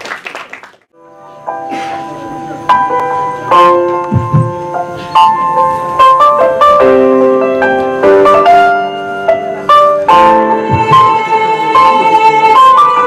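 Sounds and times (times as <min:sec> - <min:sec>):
keyboard chords: 0:01.0 - 0:13.0.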